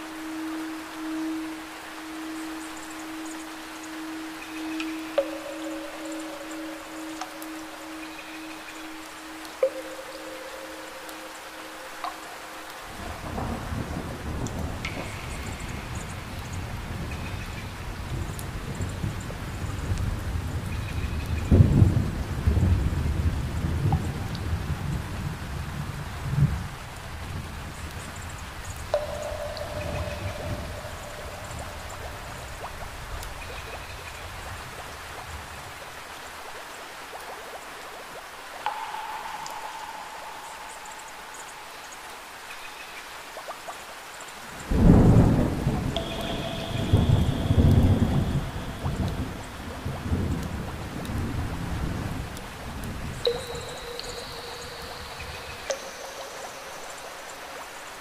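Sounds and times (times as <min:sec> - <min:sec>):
heavy rain pouring: 0:00.0 - 0:58.0
low rolling thunder: 0:44.7 - 0:53.0.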